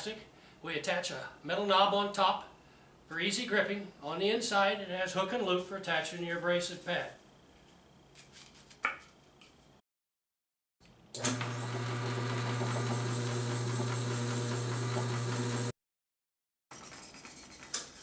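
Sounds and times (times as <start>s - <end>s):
bowling ball spinner humming: 11.2s - 15.7s.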